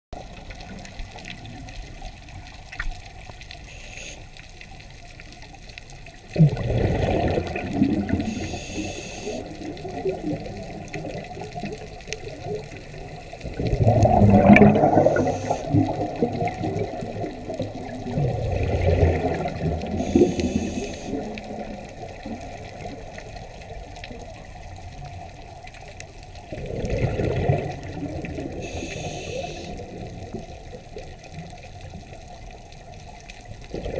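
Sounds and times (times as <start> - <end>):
exhaled bubbles underwater: 0.2 - 3.8, 4.8 - 33.9
steady low hiss: 0.2 - 5.9, 7.7 - 13.8, 14.8 - 17.9, 19.5 - 26.5, 28.3 - 30.5.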